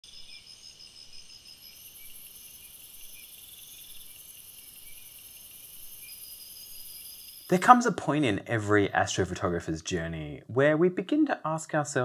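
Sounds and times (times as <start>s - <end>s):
crickets chirping: 0.0s - 7.9s
insect chorus: 0.0s - 8.0s.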